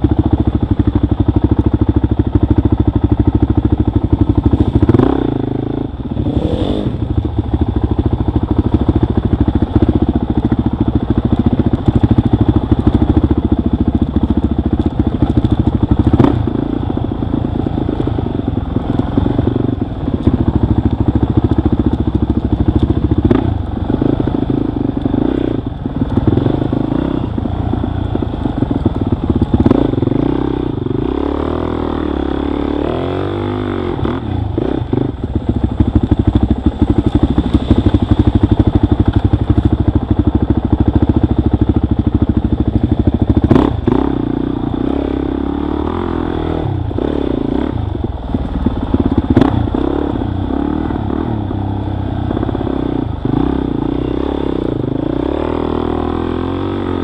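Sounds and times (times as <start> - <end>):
dirt bike engine revving: 4.2 - 7.5, 15.0 - 20.6, 23.0 - 39.8, 43.3 - 48.0, 48.8 - 57.0.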